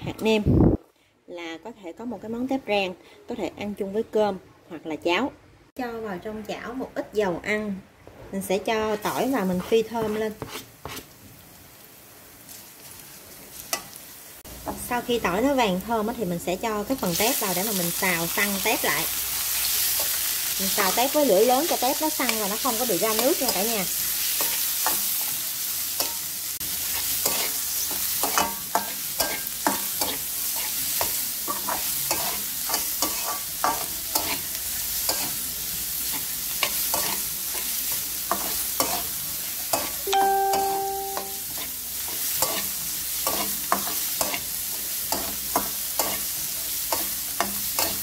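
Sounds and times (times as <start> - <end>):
shrimp sizzling in wok: 8.6 - 48.0
metal spatula scraping wok: 8.8 - 11.2, 21.7 - 40.0, 41.4 - 48.0
steady beep: 40.1 - 41.4.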